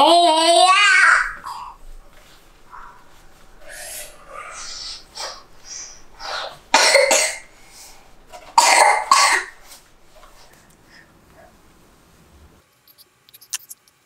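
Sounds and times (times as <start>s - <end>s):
soft breathing: 1.4s - 8.6s, 9.4s - 12.5s
person coughing: 2.6s - 9.8s.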